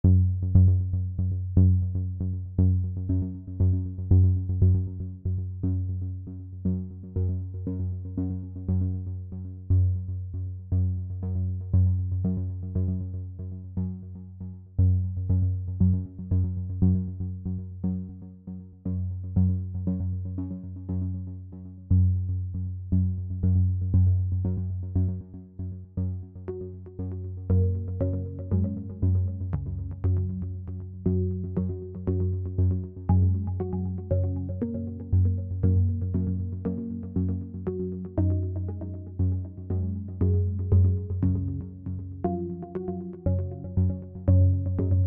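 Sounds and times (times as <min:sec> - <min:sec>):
synthesizer music with deep bass: 0:00.0 - 0:45.0.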